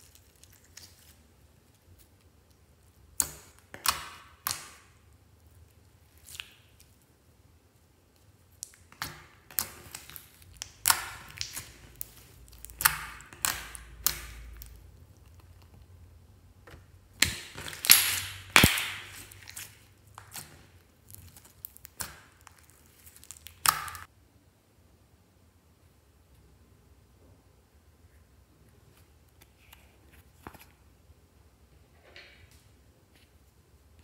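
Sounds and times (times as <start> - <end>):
slime squelching and popping: 2.0 - 5.1, 5.8 - 7.0, 8.1 - 16.0, 16.7 - 24.1.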